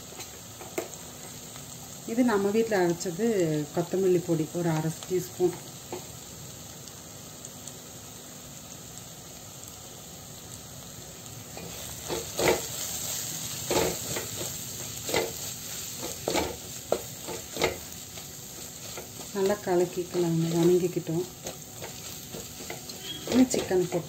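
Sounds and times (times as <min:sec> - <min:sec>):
food sizzling in oil: 0:00.0 - 0:24.0
spatula scraping pan: 0:11.6 - 0:24.0.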